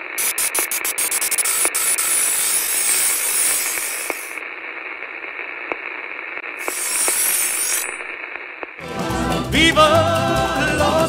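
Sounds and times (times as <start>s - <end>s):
static hiss: 0.0s - 8.8s.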